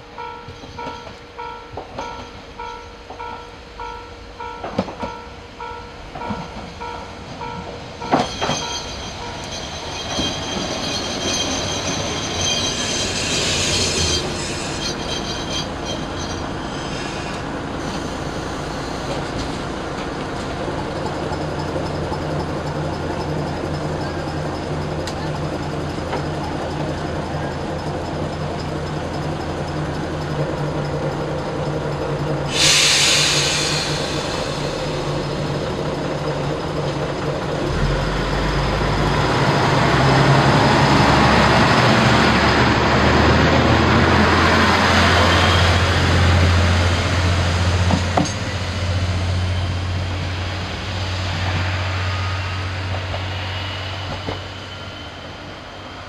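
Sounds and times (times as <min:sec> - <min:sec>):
diesel railcar engine: 0:00.0 - 0:56.0
compressed air hissing: 0:12.9 - 0:15.8, 0:16.6 - 0:19.4, 0:32.5 - 0:35.5.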